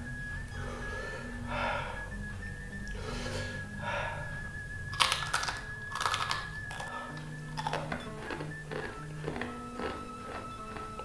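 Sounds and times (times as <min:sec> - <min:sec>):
crackers crunching when chewed: 0:04.9 - 0:11.0.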